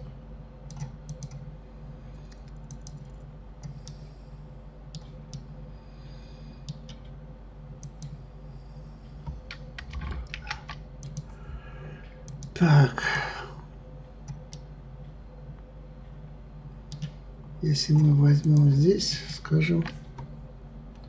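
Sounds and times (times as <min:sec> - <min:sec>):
steady low hum: 0:00.0 - 0:21.0
keyboard and mouse clicks: 0:00.7 - 0:01.4, 0:02.3 - 0:04.0, 0:04.9 - 0:05.5, 0:06.7 - 0:07.2, 0:07.8 - 0:08.2, 0:09.2 - 0:11.3, 0:12.3 - 0:12.6, 0:16.9 - 0:17.2.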